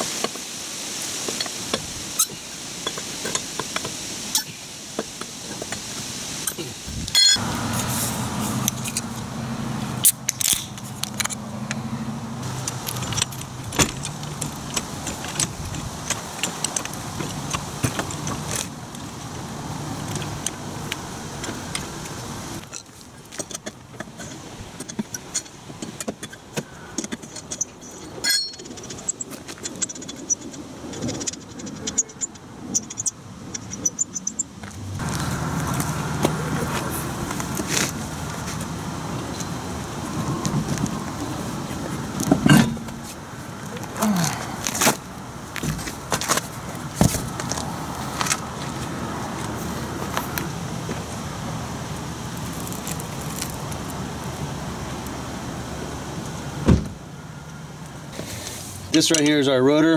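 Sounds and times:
low vehicle hum: 4.2s - 59.9s
lug wrench clinking on lug nuts: 6.4s - 7.5s, 22.6s - 34.5s, 42.4s - 43.2s.

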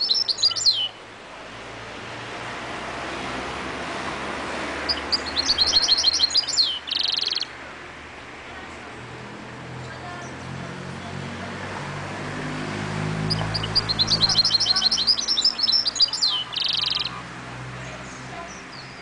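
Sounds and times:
bird singing high twittering: 0.0s - 1.0s, 4.8s - 7.6s, 13.2s - 17.2s.

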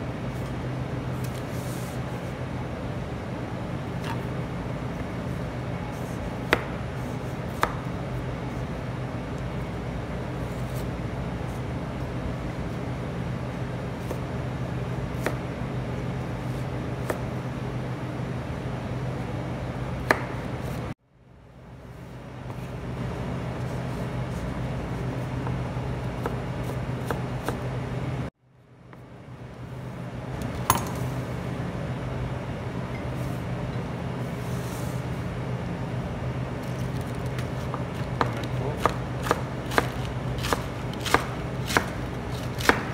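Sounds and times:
steady low hum: 0.0s - 42.9s
knife chopping on cutting board: 37.6s - 42.9s.

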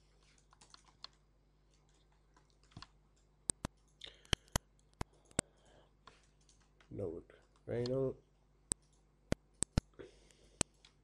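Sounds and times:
computer keyboard and mouse clicks: 0.2s - 6.9s, 8.7s - 9.0s, 9.6s - 9.9s.

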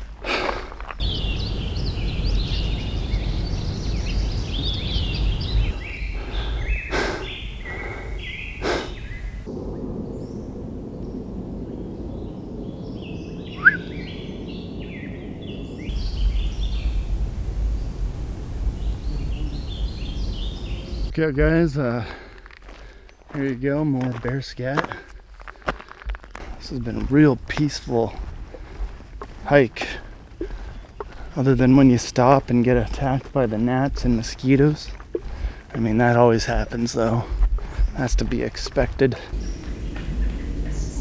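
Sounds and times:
low rumble: 0.0s - 23.1s, 25.2s - 41.0s
songbirds chirping: 0.0s - 41.0s
loud rising bird call: 10.0s - 17.0s.

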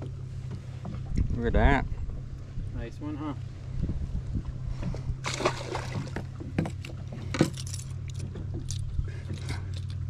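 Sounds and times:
steady low hum: 0.0s - 10.0s
fishing tackle clicks and clatter: 6.5s - 10.0s.

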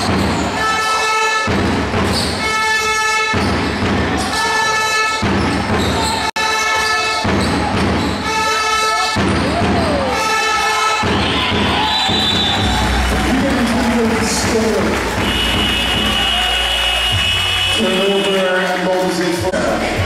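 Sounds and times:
low pounding beat: 11.0s - 18.3s
horn-like note: 15.2s - 18.5s.

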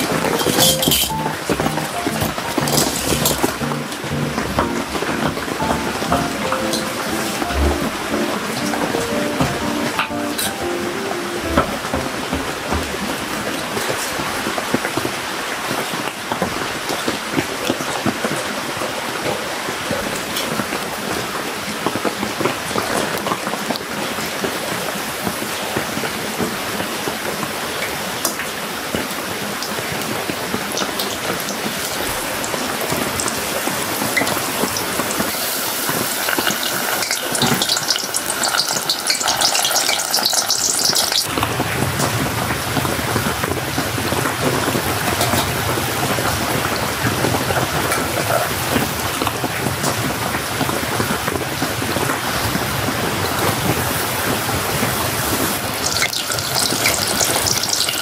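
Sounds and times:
rain on a shelter: 0.0s - 58.0s
hot oil sizzling and crackling: 34.1s - 41.4s, 54.8s - 58.0s.

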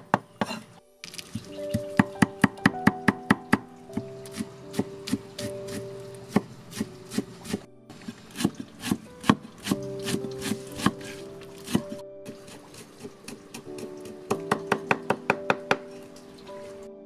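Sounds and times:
knife chopping on wooden board: 4.3s - 15.9s.

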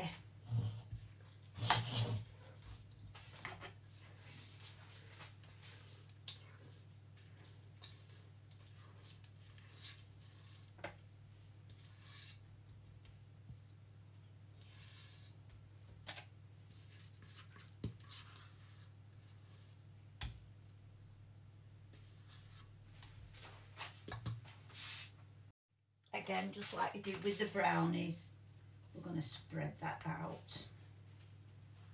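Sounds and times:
batter scraped from metal bowl: 1.6s - 2.4s, 8.6s - 10.8s, 11.7s - 12.5s, 14.6s - 15.4s, 16.7s - 19.9s, 22.1s - 22.8s.

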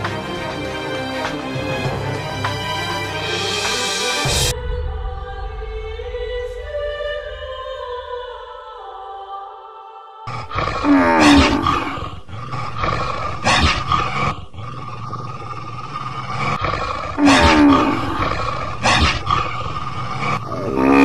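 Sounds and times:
rough animal growling: 10.3s - 21.0s.

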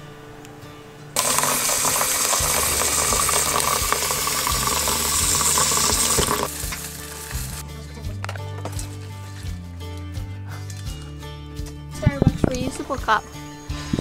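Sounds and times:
cereal flakes poured into bowl: 1.2s - 7.6s
tap water running into pitcher: 1.2s - 7.6s.

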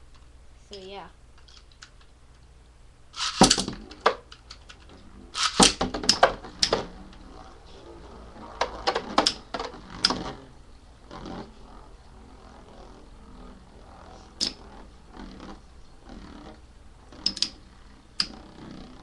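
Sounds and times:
spinning tops clashing: 3.2s - 6.9s
ripcord zip: 3.2s - 19.0s.

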